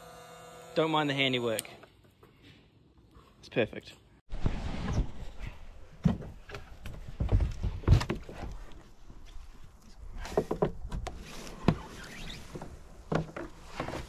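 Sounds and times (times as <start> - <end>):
knocks and scrapes on plastic kayak: 10.1 - 14.0.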